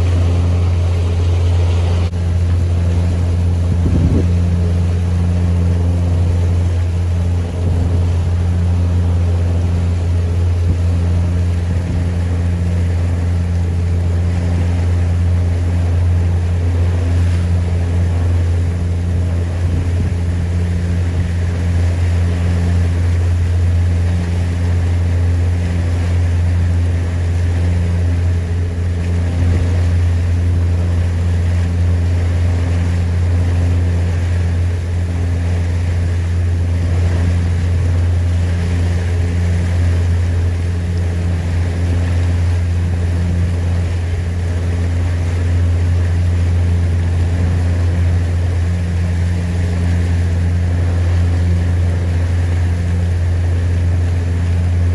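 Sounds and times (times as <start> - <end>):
marine engine drone: 0.0 - 54.9.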